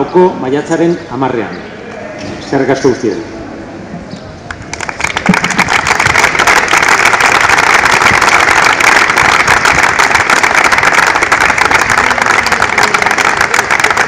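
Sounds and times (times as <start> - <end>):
crowd applauding: 4.5 - 14.0.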